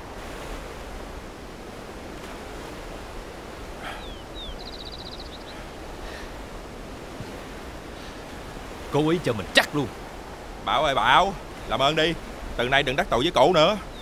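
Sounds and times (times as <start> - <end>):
surf washing: 0.0 - 14.0
small bird chirping and trilling: 4.0 - 5.8.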